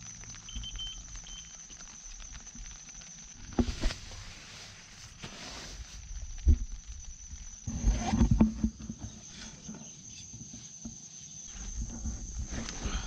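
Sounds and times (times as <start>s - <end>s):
camera rustling against bedding: 3.5s - 6.0s.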